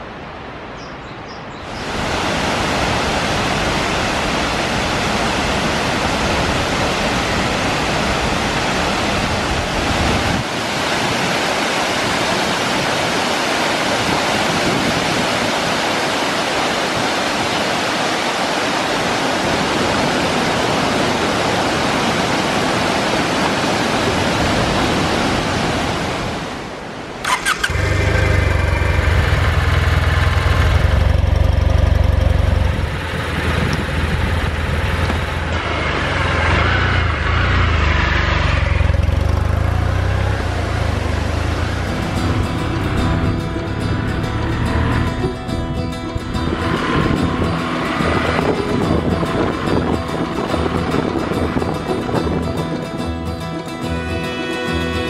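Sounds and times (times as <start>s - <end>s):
waterfall rushing: 1.6s - 55.0s
motorcycle engine running: 27.4s - 52.5s.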